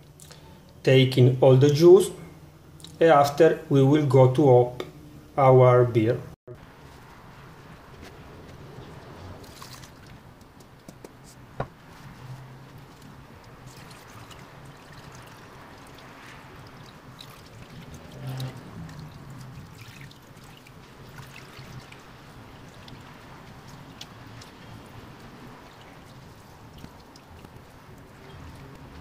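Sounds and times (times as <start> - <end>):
liquid trickling into a bowl: 9.4 - 10.1, 12.8 - 28.6.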